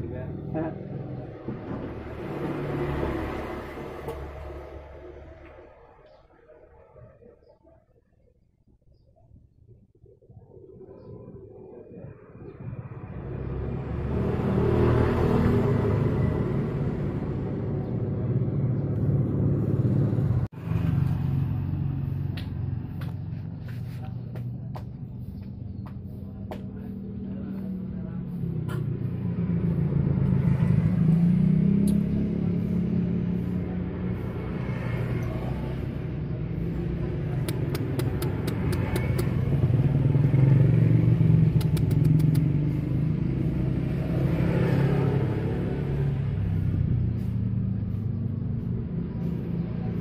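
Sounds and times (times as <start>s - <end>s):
vehicle engine rumbling: 0.0s - 50.0s
quick sharp ticks: 37.4s - 39.5s, 41.4s - 42.9s.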